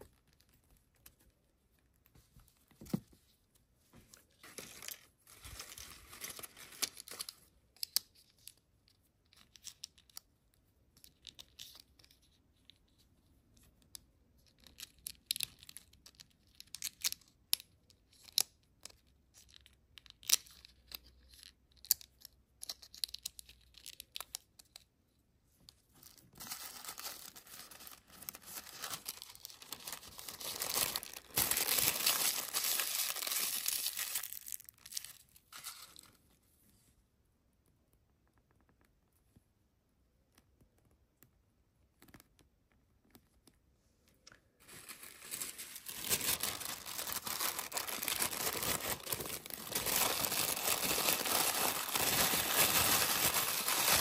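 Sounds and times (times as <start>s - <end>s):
tissue paper crinkling: 4.4s - 7.3s, 26.0s - 36.1s, 44.6s - 54.0s.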